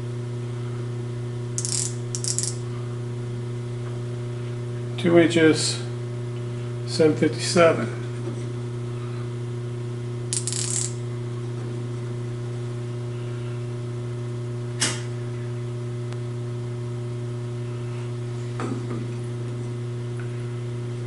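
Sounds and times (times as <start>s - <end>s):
electrical motor hum: 0.0s - 21.0s
sharp micrometer click: 1.6s - 2.6s, 10.3s - 11.0s.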